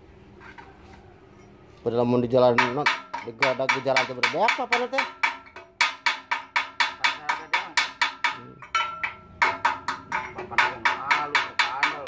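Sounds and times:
hammer striking metal drum: 2.5 - 12.0.

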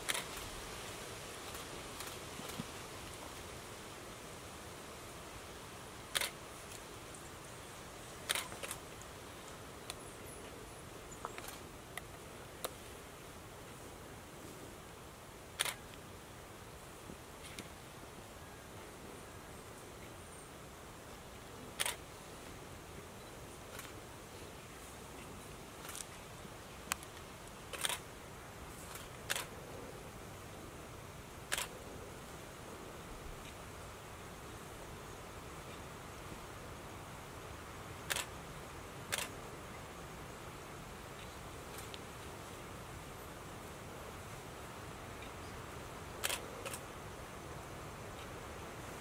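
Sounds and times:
steady outdoor hiss: 0.0 - 49.0
camera shutter clicks: 6.1 - 6.4, 8.2 - 8.8, 15.6 - 15.8, 21.8 - 22.0, 27.7 - 28.0, 28.9 - 29.5, 31.5 - 31.7, 38.1 - 38.3, 39.1 - 39.3, 46.2 - 46.8.

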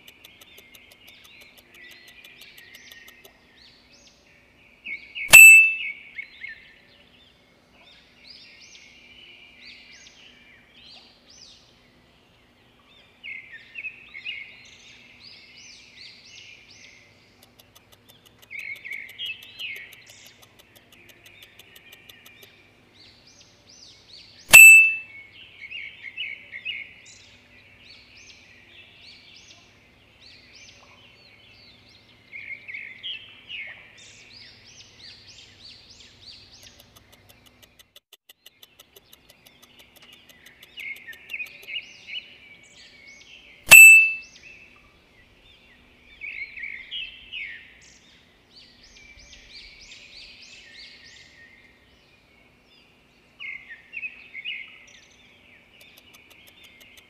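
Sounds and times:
birds chirping and trilling: 0.0 - 57.0
loud ding: 5.3 - 5.8, 24.5 - 25.0, 43.7 - 44.2.

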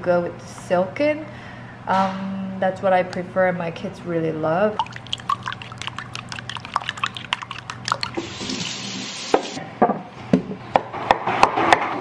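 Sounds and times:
whisk clicking against bowl: 4.8 - 8.2.

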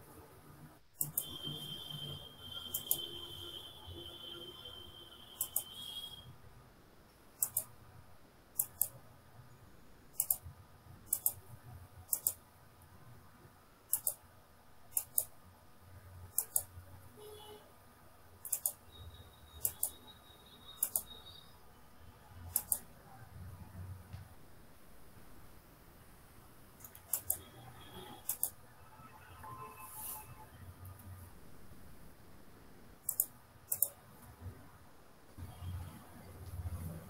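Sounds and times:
computer mouse clicking: 1.0 - 1.4, 2.7 - 3.1, 5.4 - 6.0, 7.4 - 7.8, 8.6 - 9.0, 10.1 - 10.5, 11.1 - 12.4, 13.9 - 14.2, 14.9 - 15.4, 16.3 - 16.8, 18.4 - 18.8, 19.6 - 20.1, 20.8 - 21.4, 22.5 - 22.9, 26.8 - 27.5, 28.2 - 28.6, 33.0 - 34.2.

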